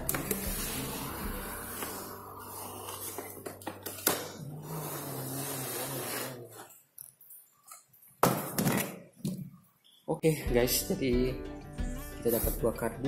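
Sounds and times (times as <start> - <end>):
background music: 0.0 - 5.5, 10.2 - 13.0
cardboard sleeve sliding: 4.6 - 6.6.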